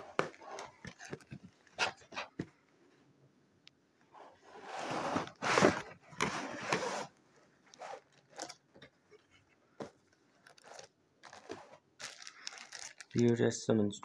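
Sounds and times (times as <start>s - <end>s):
box sliding out of cardboard sleeve: 4.2s - 7.1s.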